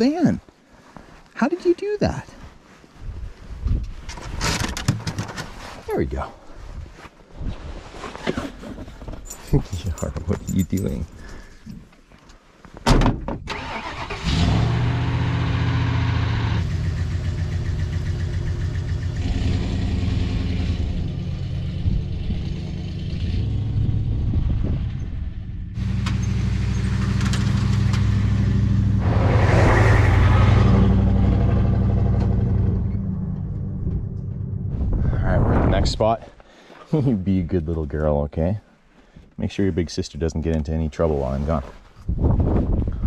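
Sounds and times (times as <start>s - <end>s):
van engine running: 14.7s - 24.5s, 30.6s - 34.8s.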